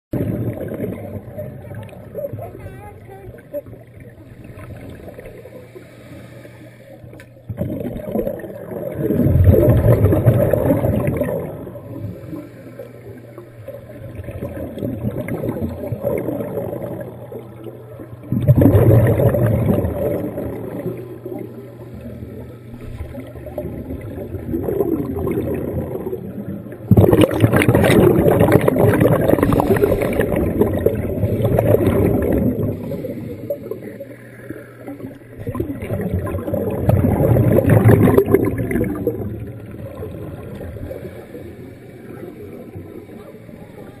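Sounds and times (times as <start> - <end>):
scuba diver exhaling bubbles: 0.2 - 1.9, 7.5 - 34.1, 34.8 - 43.1
diver breathing through regulator: 5.0 - 7.2, 11.9 - 13.9, 29.1 - 30.8, 32.5 - 35.1, 40.6 - 42.6
steady low hum: 8.9 - 44.0.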